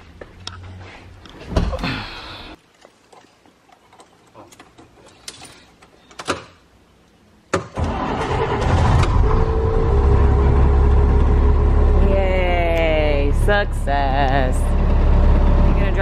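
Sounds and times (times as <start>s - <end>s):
bus engine starting and idling: 7.6s - 16.0s.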